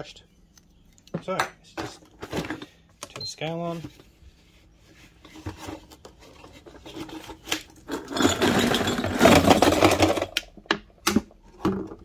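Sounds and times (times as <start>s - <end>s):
metal pieces clattering into plastic bowl: 7.8s - 10.4s
metal pieces knocking: 7.9s - 10.5s.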